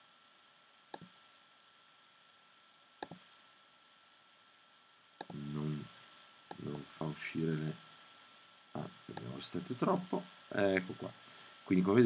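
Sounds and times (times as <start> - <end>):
faint room hiss: 0.0 - 12.0
computer mouse clicks: 0.9 - 1.1, 3.0 - 3.2, 5.2 - 5.4, 9.1 - 9.4
thin high whine: 5.2 - 12.0.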